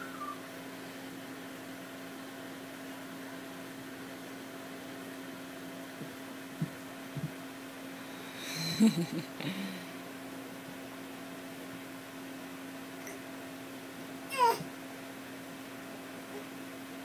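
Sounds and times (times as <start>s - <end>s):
room hum and hiss: 0.0s - 17.0s.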